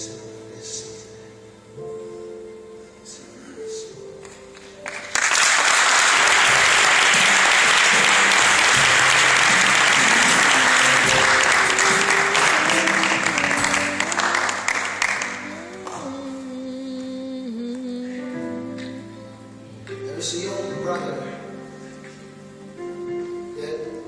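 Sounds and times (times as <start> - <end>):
music playing: 0.0 - 24.0
crowd applauding: 4.8 - 16.0.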